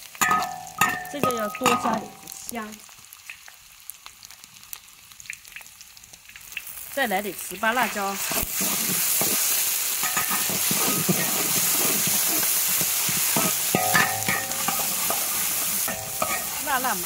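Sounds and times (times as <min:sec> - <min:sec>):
food sizzling in hot oil: 0:00.0 - 0:17.0
metal spatula scraping wok: 0:07.8 - 0:17.0.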